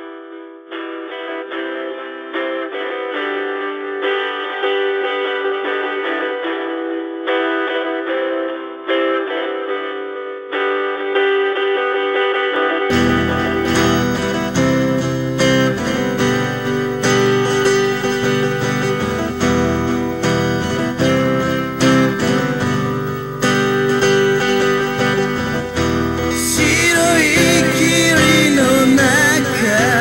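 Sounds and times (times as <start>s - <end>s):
acoustic guitar chords: 0.0s - 30.0s
person singing: 25.6s - 30.0s.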